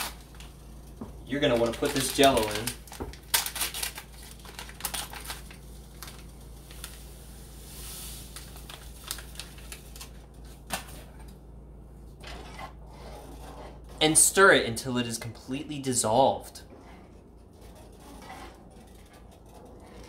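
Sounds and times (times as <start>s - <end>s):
paper pouch crinkling and tearing: 1.3s - 7.2s, 8.2s - 10.7s.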